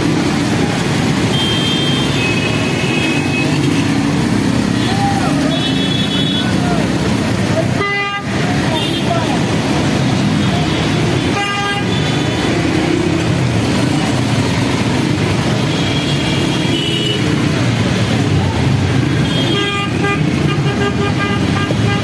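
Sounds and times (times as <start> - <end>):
vehicle engines running: 0.0 - 22.0
car horns honking: 1.2 - 4.0.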